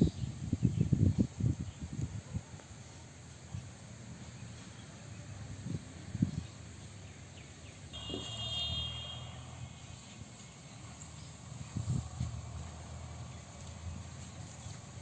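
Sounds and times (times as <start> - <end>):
high-pitched tone: 8.0 - 9.9.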